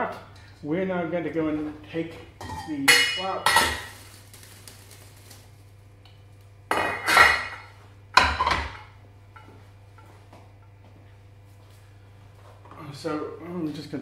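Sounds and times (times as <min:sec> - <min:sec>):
dishes and utensils clattering: 0:02.4 - 0:03.9, 0:06.7 - 0:09.5.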